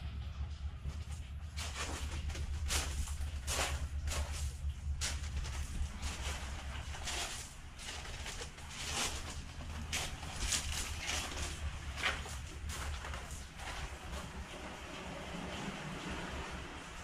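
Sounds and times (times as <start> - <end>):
steady low rumble: 0.0 - 17.0
footsteps crunching on pebbles: 1.5 - 14.4.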